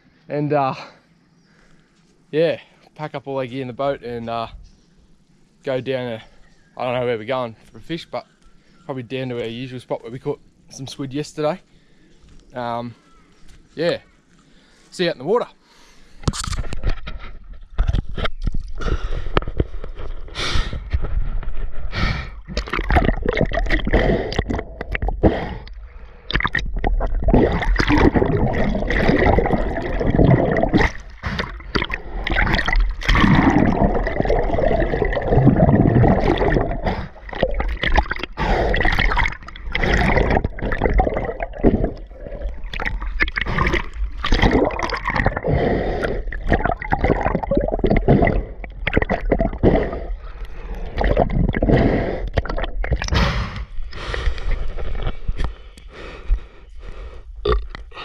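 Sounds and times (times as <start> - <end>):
underwater gurgling and bubbling: 20.8 - 55.4.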